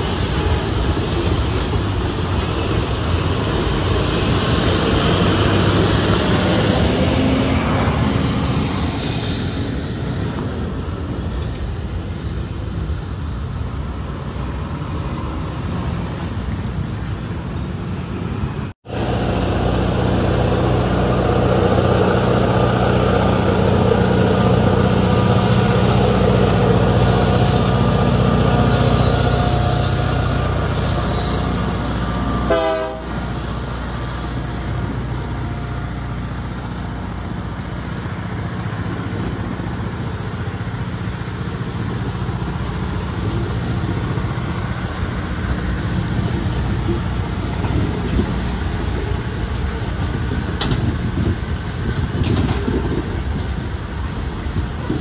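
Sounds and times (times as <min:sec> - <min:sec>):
diesel locomotive engine drone: 0:00.0 - 0:55.0
freight cars rumbling on rails: 0:00.0 - 0:55.0
high wheel squeals: 0:26.9 - 0:35.9.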